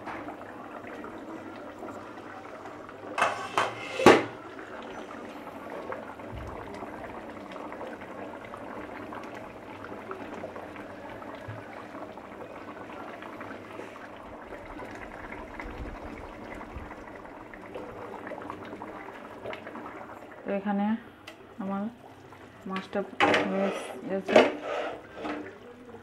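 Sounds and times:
gravy bubbling in a pan: 0.0 - 20.7.

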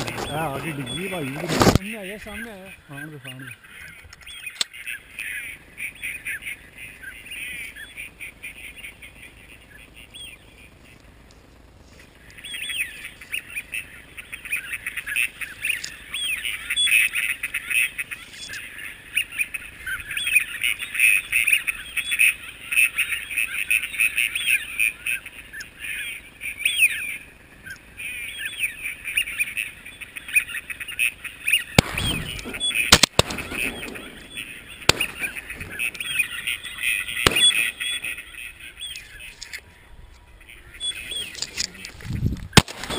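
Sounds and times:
birds chattering: 0.0 - 42.9
rustle: 0.0 - 42.9.

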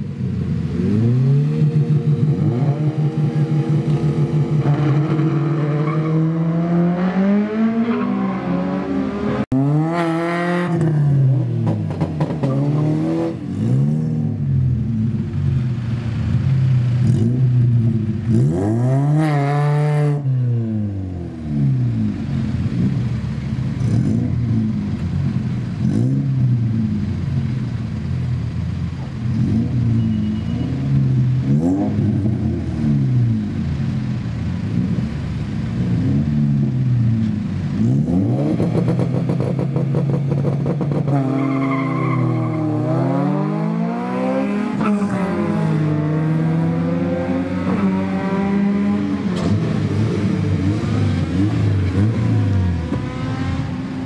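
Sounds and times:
drag race car engines revving: 0.0 - 54.0.

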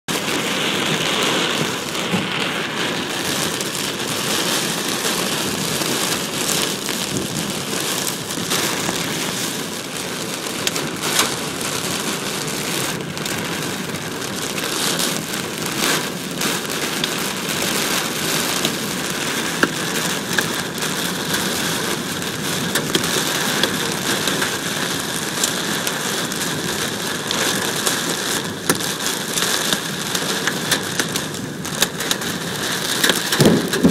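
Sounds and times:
hailstones striking truck body: 33.0 - 33.9.

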